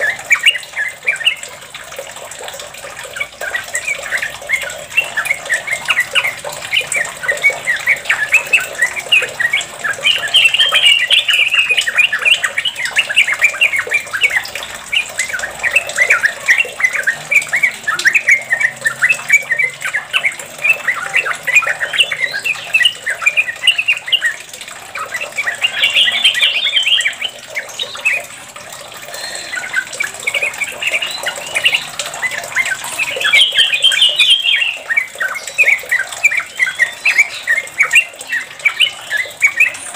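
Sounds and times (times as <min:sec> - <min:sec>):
bird singing chattering notes: 0:00.0 - 0:39.9.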